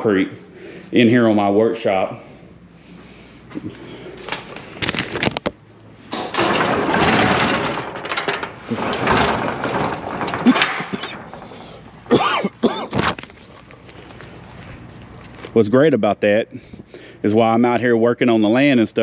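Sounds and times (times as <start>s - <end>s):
metal garage door rattling: 5.9s - 13.5s.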